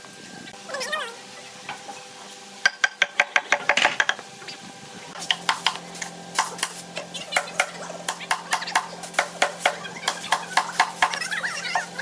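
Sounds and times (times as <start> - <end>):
hammer tapping on wooden boards: 2.6 - 4.2.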